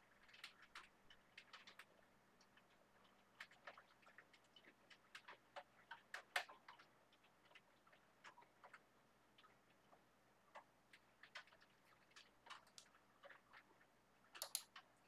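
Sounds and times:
typing on computer keyboard: 0:14.4 - 0:14.9.

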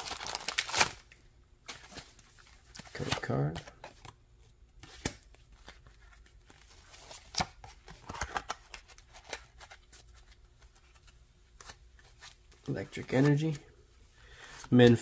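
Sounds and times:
trading cards rustling and clicking: 0:01.7 - 0:13.6.

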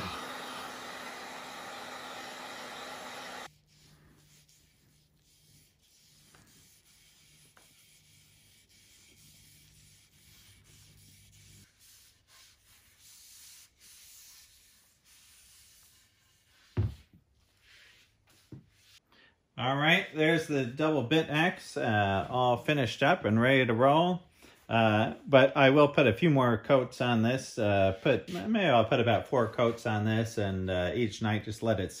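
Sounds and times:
heat gun blowing: 0:00.0 - 0:04.6
rag rubbing on wood: 0:03.4 - 0:19.0.

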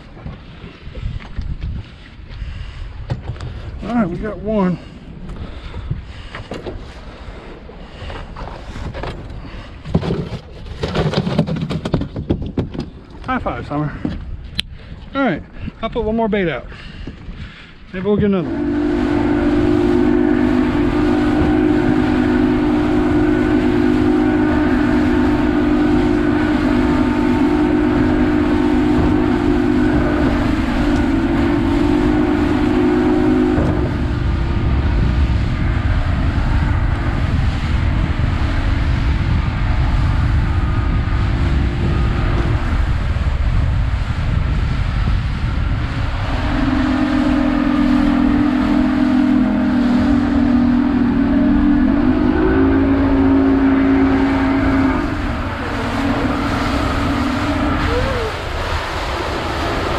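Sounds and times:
boat engine droning: 0:00.0 - 0:59.9
wind buffeting: 0:00.0 - 0:59.9
water rushing past hull: 0:17.3 - 0:59.9.

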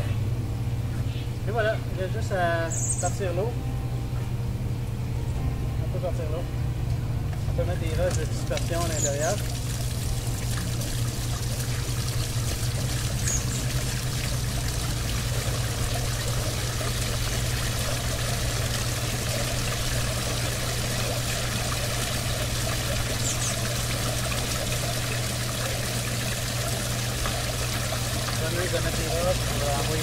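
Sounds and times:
low hum: 0:00.0 - 0:30.0
waterfall splashing into pool: 0:08.1 - 0:30.0.

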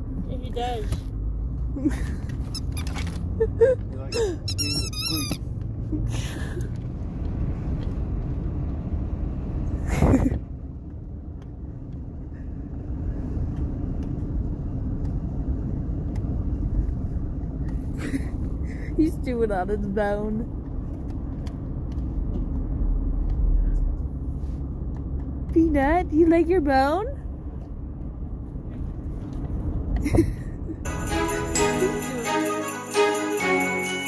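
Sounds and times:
road rumble inside car: 0:00.0 - 0:30.9
high wavering squeaks: 0:02.5 - 0:03.0, 0:04.1 - 0:05.5.

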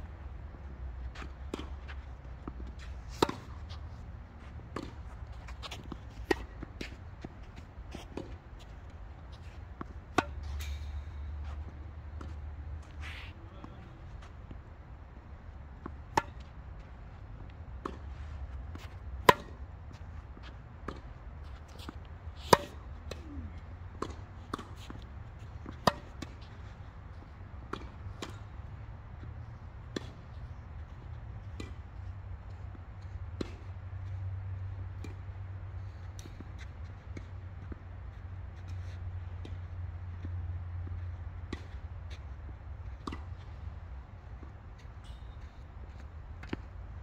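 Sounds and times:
tennis ball bouncing: 0:01.1 - 0:14.2, 0:15.8 - 0:18.0, 0:18.6 - 0:23.2, 0:24.0 - 0:26.7, 0:43.0 - 0:43.6, 0:45.4 - 0:46.8
racquet striking tennis ball: 0:03.2 - 0:03.7, 0:09.8 - 0:11.2, 0:15.8 - 0:16.5, 0:19.2 - 0:19.6, 0:22.4 - 0:23.2, 0:25.7 - 0:26.3.

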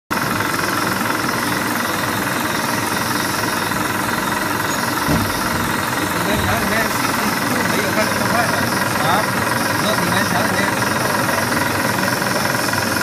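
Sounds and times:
printing machine clattering: 0:00.2 - 0:13.0
short thump: 0:04.2 - 0:07.1.

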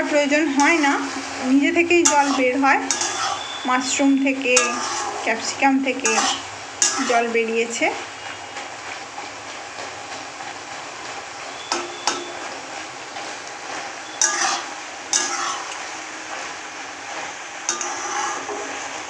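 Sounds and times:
frying sizzle: 0:00.0 - 0:19.0
metal spatula scraping pan: 0:00.4 - 0:07.5, 0:13.7 - 0:15.8, 0:17.7 - 0:18.9.

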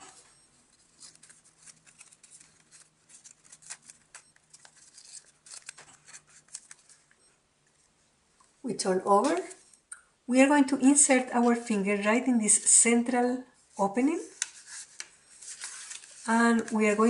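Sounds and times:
paper being folded and creased: 0:00.1 - 0:07.2, 0:14.3 - 0:17.0.

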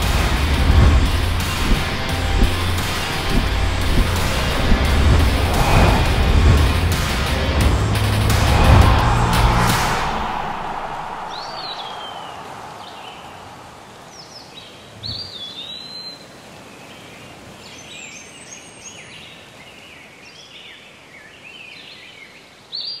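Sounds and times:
steady outdoor hiss: 0:00.0 - 0:23.0
low thump: 0:00.6 - 0:12.2
birds chirping: 0:09.1 - 0:16.2.

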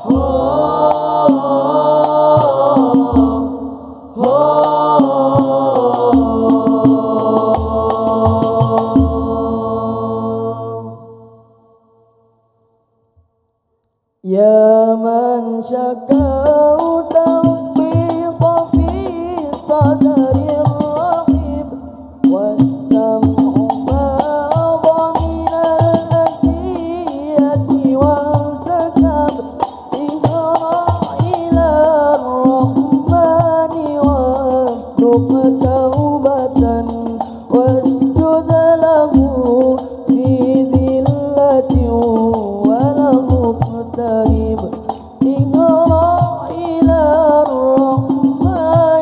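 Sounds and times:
solo voice singing: 0:00.0 - 0:11.7, 0:14.2 - 0:49.0
frame drums beating: 0:04.2 - 0:09.5, 0:22.3 - 0:49.0.

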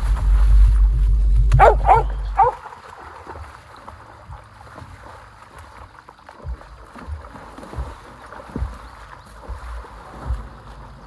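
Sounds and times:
wind rumble on microphone: 0:00.0 - 0:02.6
splashing through shallow water: 0:00.0 - 0:11.0
dog yipping: 0:01.6 - 0:02.7.

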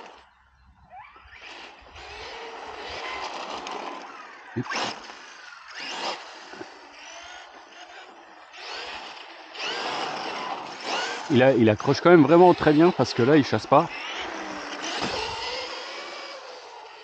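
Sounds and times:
electric motor whining: 0:00.0 - 0:17.0.

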